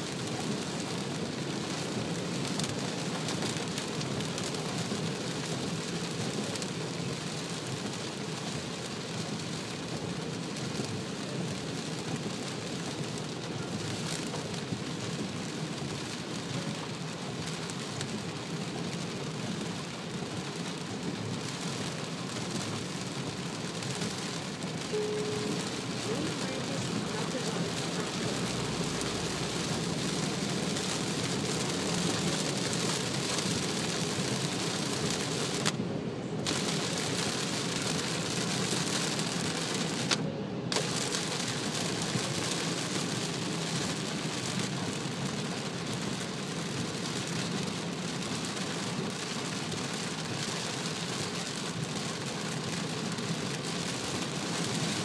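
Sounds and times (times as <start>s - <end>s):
rain pelting car roof: 0.0s - 55.0s
tyre and road noise: 10.6s - 50.0s.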